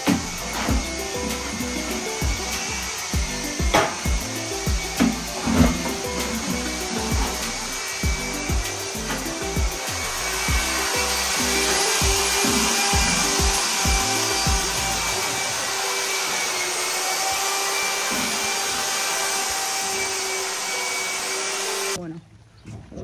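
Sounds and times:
background music with low beat: 0.0s - 15.7s.

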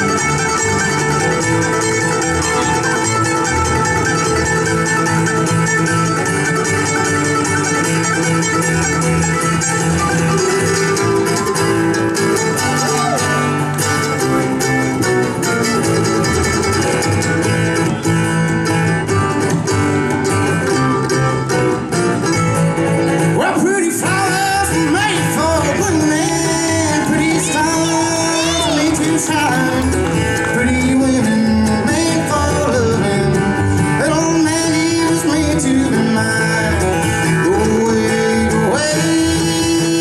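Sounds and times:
bluegrass band playing: 0.0s - 40.0s
man singing: 23.3s - 40.0s.

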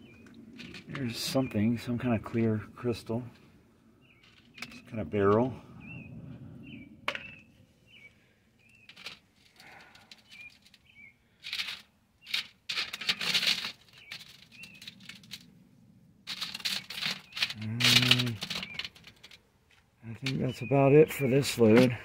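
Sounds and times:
stones rattling on wire mesh: 0.6s - 1.4s, 8.8s - 15.5s, 16.2s - 19.4s
small bird chirping: 5.8s - 9.2s, 10.2s - 12.6s, 13.8s - 15.5s, 16.7s - 19.3s.

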